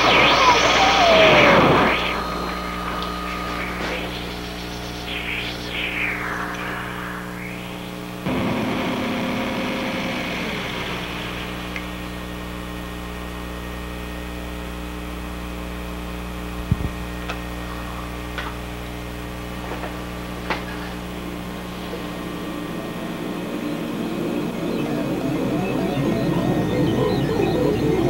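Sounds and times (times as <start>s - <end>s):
music: 23.4s - 28.0s.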